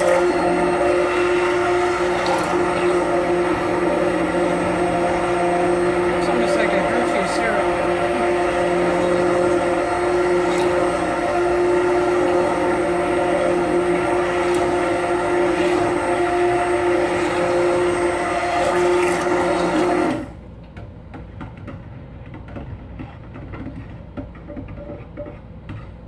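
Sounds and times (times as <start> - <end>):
immersion blender motor hum: 0.0 - 20.4.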